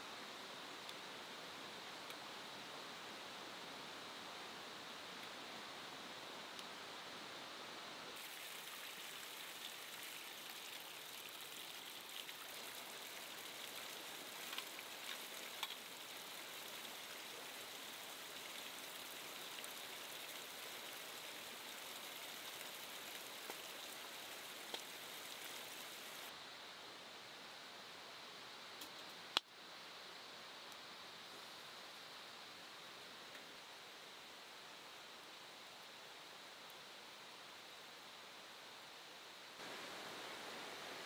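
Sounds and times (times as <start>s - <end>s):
faint hiss of water: 0.0s - 41.0s
small ticks: 13.5s - 17.7s, 21.9s - 24.0s, 24.6s - 26.3s.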